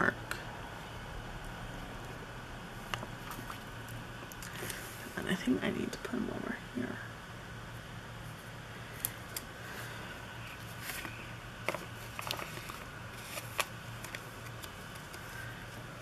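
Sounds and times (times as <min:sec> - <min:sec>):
steady low hum: 0:00.0 - 0:16.0
paper rustling: 0:10.5 - 0:15.9.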